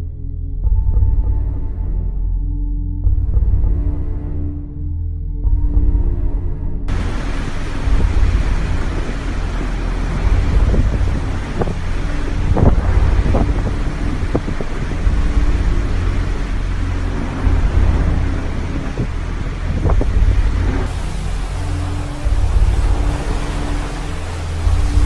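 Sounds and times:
wind rumbling on microphone: 0:06.9 - 0:25.0.

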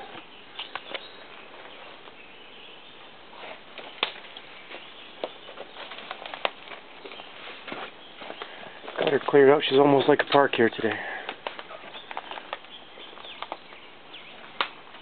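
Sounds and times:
footsteps on twigs and leaf litter: 0:03.3 - 0:15.0.

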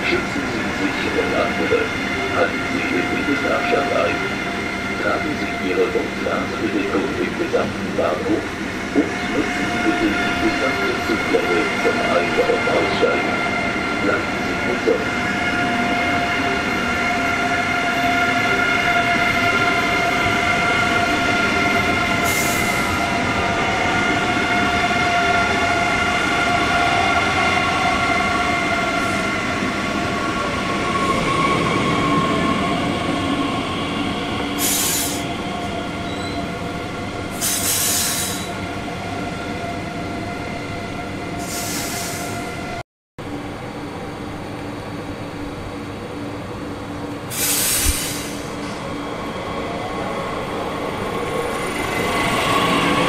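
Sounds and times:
train wheels squealing: 0:30.8 - 0:36.6, 0:37.4 - 0:38.6
short hisses: 0:47.3 - 0:48.4.

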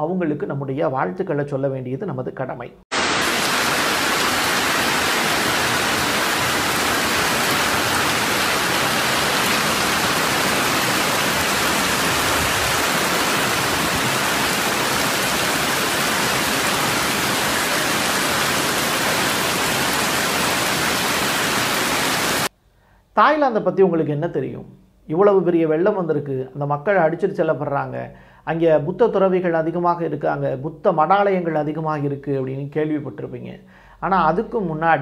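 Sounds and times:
floodwater rushing: 0:02.9 - 0:22.5.

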